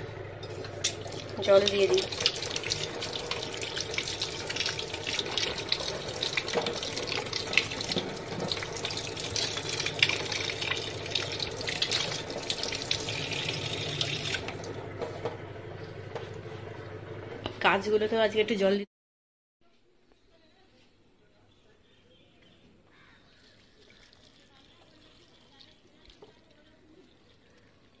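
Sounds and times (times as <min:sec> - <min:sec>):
tap water splashing in sink: 0:00.6 - 0:15.4, 0:23.9 - 0:27.8.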